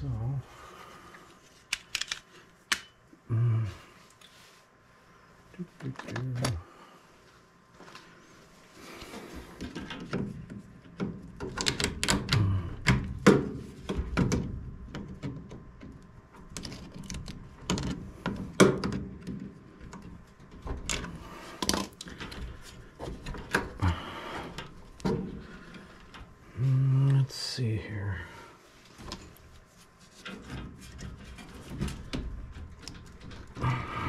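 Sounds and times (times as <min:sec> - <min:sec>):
plastic hoses rattling: 0:30.1 - 0:34.0.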